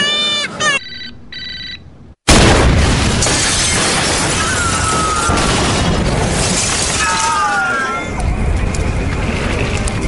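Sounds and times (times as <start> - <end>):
car explosion blast: 2.3 - 7.1
fire rushing and burning: 2.3 - 10.0.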